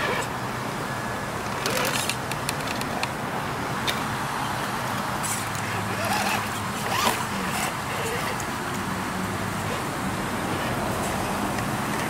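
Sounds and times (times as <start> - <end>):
rc car motor whirring: 0.0 - 0.4, 1.5 - 2.2, 5.2 - 8.5.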